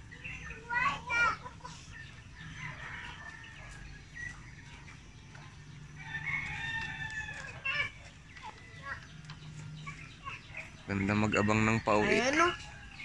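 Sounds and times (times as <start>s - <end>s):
rooster crowing: 6.0s - 7.7s.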